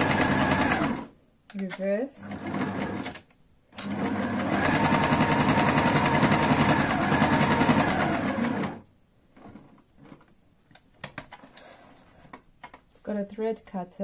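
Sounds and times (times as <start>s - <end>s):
sewing machine running: 0.0s - 1.1s, 2.2s - 3.2s, 3.8s - 8.8s.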